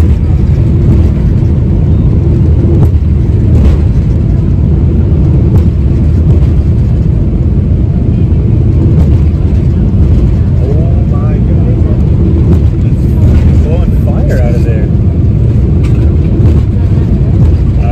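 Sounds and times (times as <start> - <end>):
jet engines rumbling: 0.0 - 17.9
rushing air: 0.0 - 17.9.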